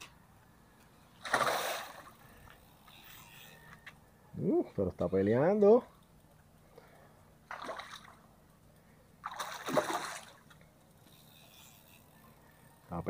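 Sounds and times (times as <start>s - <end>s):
fish splashing at water surface: 1.2s - 2.4s, 7.5s - 8.2s, 9.2s - 10.6s.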